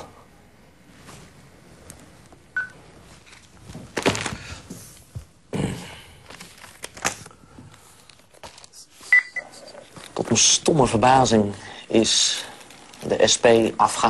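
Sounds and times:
paper rustling: 0:06.3 - 0:09.1, 0:12.1 - 0:14.0.

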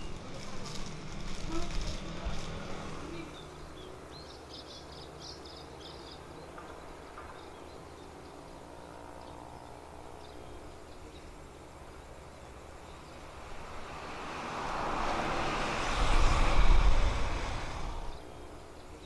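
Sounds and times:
bird chirping: 0:03.2 - 0:13.3.

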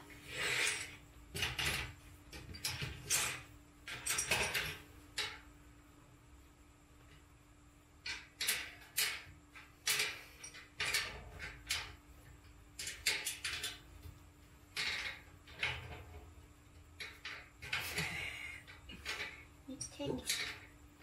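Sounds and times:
shelf parts rasping and clattering: 0:08.1 - 0:14.1, 0:14.7 - 0:21.0.

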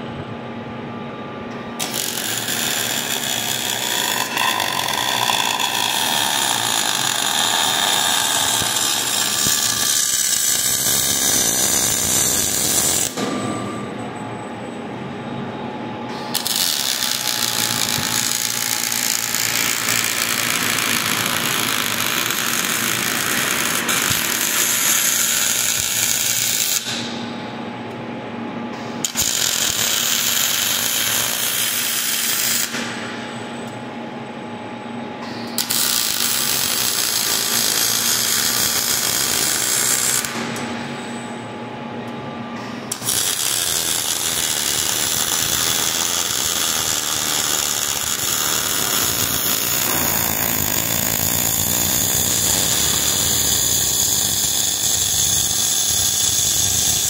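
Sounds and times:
welding arc hissing: 0:01.8 - 0:13.2, 0:16.3 - 0:27.0, 0:29.0 - 0:32.8, 0:35.6 - 0:40.5, 0:42.9 - 0:57.0.

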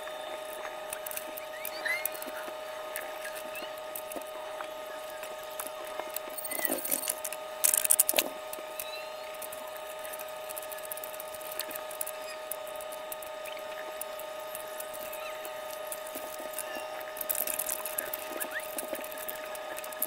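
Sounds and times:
steady high-pitched hum: 0:00.0 - 0:20.0
small metal parts clattering: 0:06.4 - 0:08.3.

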